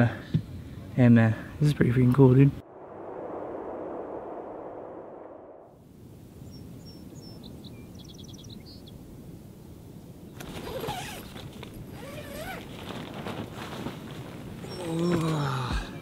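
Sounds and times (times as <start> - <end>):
bird chirps: 6.4 - 9.0
tent zipper: 10.4 - 15.3
nylon rustling: 10.4 - 15.4.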